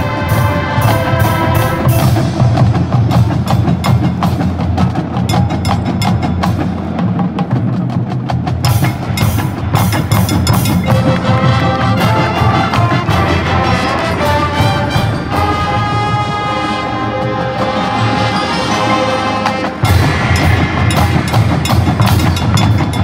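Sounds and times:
held horn chords: 0.0 - 2.7, 10.9 - 22.7
marching band percussion: 0.0 - 23.0.

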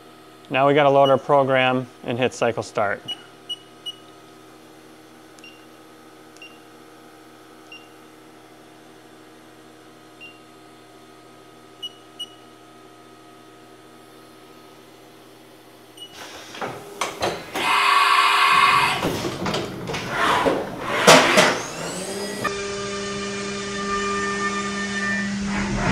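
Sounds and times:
machine hum: 0.0 - 25.9
mill running noise: 16.0 - 22.5.

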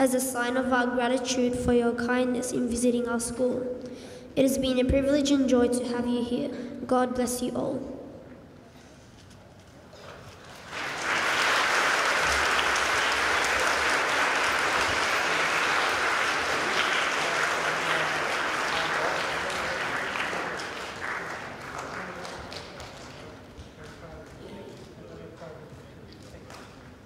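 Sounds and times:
audience applauding: 10.4 - 24.5.

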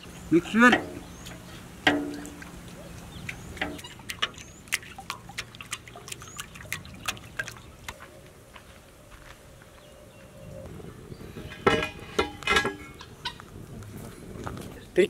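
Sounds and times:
liquid splashing: 0.5 - 8.0.

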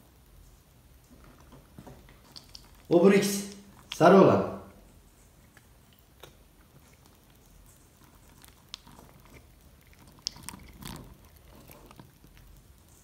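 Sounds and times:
cat chewing: 2.0 - 2.9, 3.7 - 4.0, 4.9 - 13.0.

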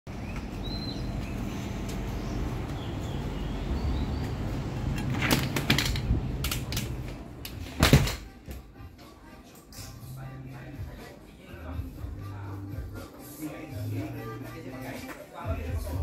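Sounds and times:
street ambience hum: 0.1 - 16.0
glass door clicks and knocks: 7.8 - 8.2.

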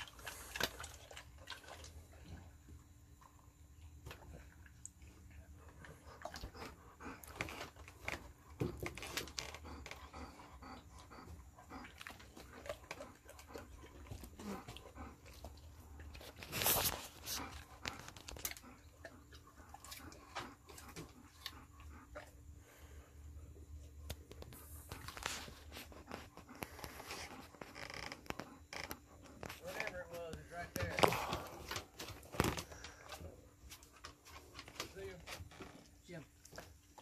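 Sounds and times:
water splashing in a bucket: 0.0 - 2.5
dog crunching apples: 16.1 - 18.8, 24.2 - 28.6.

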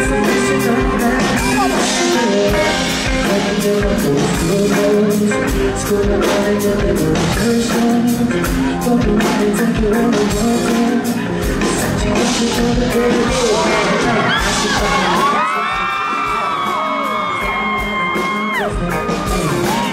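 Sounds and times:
amplified pop music with beat: 0.0 - 19.9
man singing into microphone: 0.0 - 19.9
fans screaming: 0.1 - 2.9, 13.1 - 19.9.

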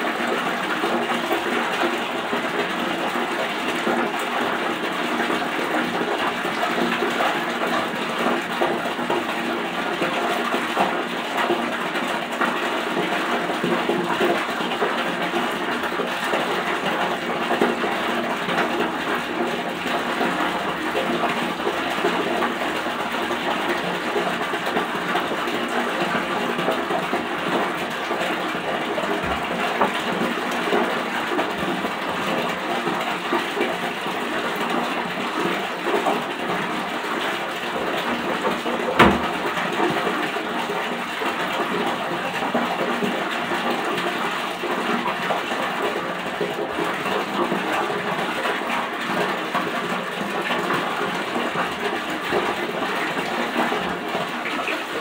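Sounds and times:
water running from tap: 0.0 - 55.0
knock: 38.9 - 39.4.

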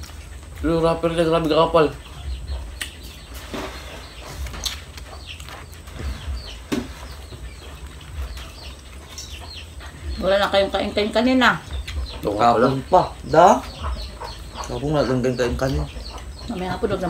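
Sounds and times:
bird chirps: 0.0 - 17.0
low rumble: 0.0 - 17.0
eating mouth noises: 4.2 - 10.0.

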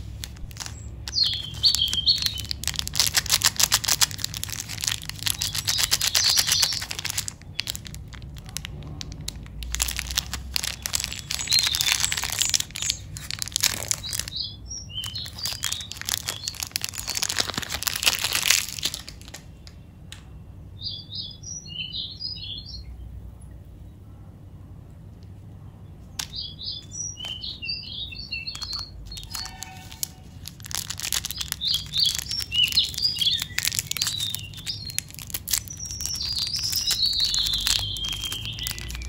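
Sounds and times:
wrapper crinkling and tearing: 0.0 - 19.7, 28.4 - 39.0
small birds chirping: 0.0 - 24.0, 25.6 - 39.0.

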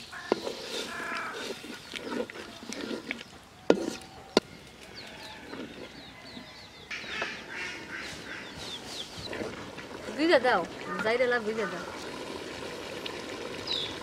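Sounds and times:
birds chirping: 0.0 - 12.1, 13.4 - 14.0
wooden spoon stirring in metal pot: 0.0 - 12.7.

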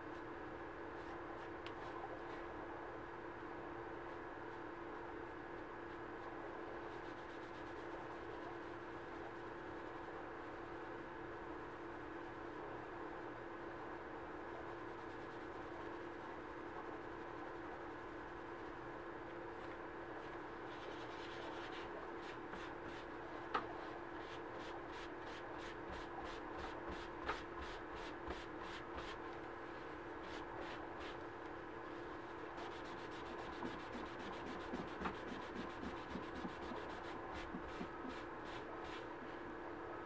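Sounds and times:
steady background hum: 0.0 - 40.0.

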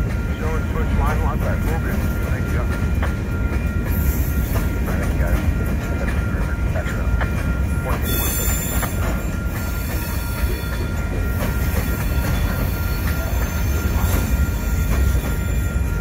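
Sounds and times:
train wheels rumbling on rail: 0.0 - 16.0
high wheel squeal: 7.6 - 16.0.

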